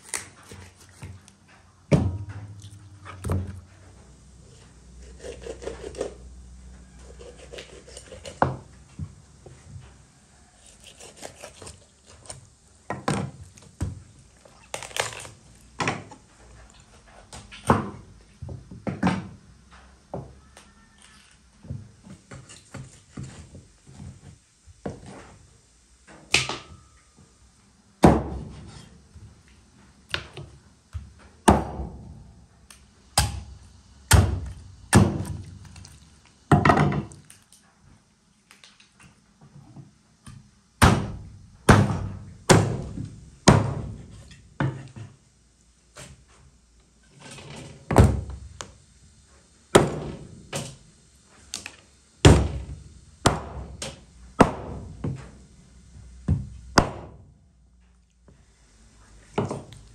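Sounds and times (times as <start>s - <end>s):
cleaver chopping on wooden board: 54.4s - 54.8s, 56.8s - 57.1s.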